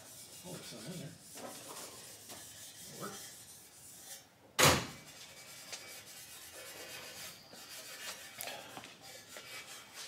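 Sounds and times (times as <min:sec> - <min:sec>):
loud thump: 0:04.6 - 0:05.0.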